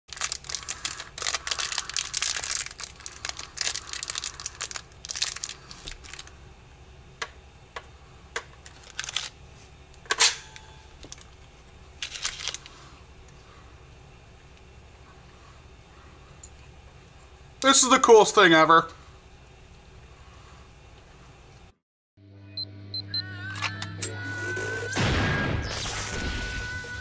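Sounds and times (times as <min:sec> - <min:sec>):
plastic helmet crackling and rustling: 0:00.1 - 0:06.3, 0:08.4 - 0:09.4, 0:11.0 - 0:12.8.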